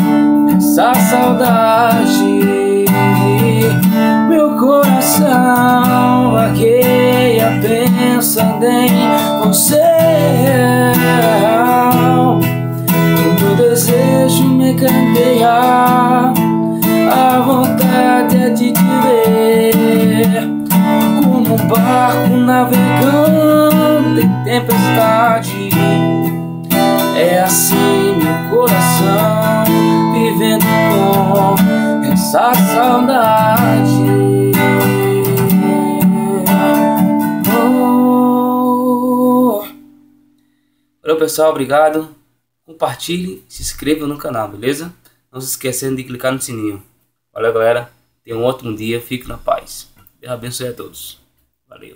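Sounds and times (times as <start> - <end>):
acoustic guitar strumming: 0.0 - 40.7.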